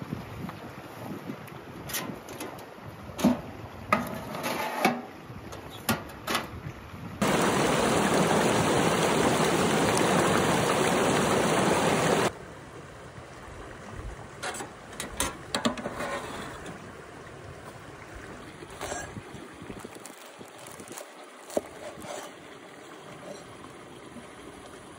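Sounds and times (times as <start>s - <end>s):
metal clatter from stove and pan: 4.0s - 5.1s, 14.4s - 16.4s
water rushing over log: 7.2s - 12.4s, 18.0s - 24.9s.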